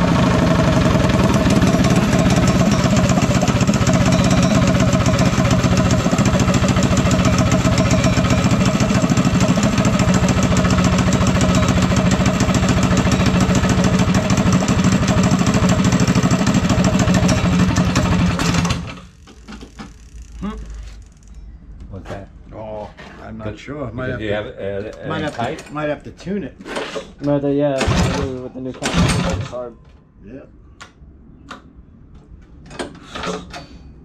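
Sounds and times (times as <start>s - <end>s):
go-kart engine running: 0.0s - 19.0s.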